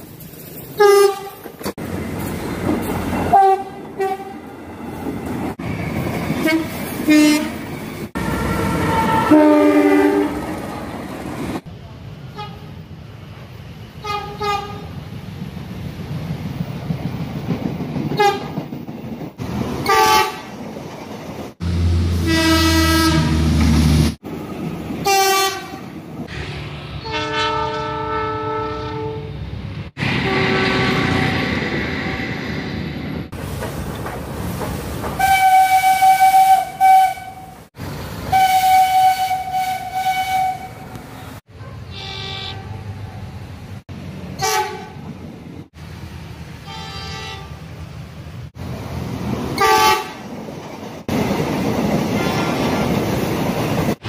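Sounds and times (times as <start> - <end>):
trains running on rails: 0.0 - 54.0
train horns blasting: 0.8 - 1.4, 3.3 - 4.4, 6.4 - 7.6, 8.2 - 10.6, 12.3 - 12.7, 14.0 - 15.0, 18.2 - 18.6, 19.8 - 20.5, 21.6 - 23.9, 25.0 - 32.4, 35.2 - 37.6, 38.3 - 42.9, 44.4 - 45.0, 46.6 - 47.6, 49.6 - 50.2, 52.1 - 52.8.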